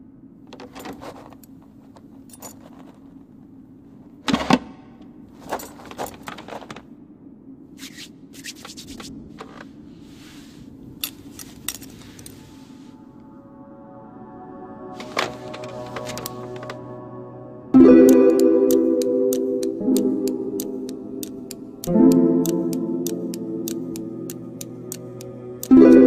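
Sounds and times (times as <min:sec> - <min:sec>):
low hum: 0:00.0 - 0:26.0
knitting needles clicking: 0:18.0 - 0:25.8.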